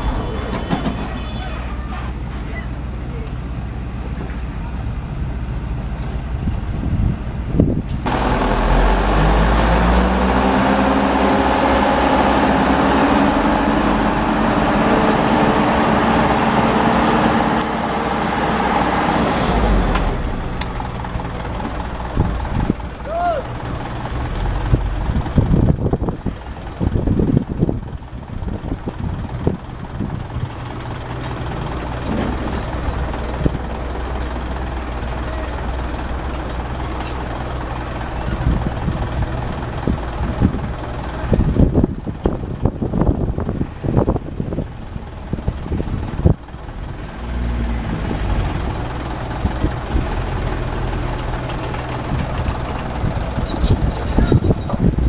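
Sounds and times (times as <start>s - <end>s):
diesel engine running: 0.0s - 55.0s
knocks and clatter: 0.3s - 1.4s, 31.2s - 33.6s.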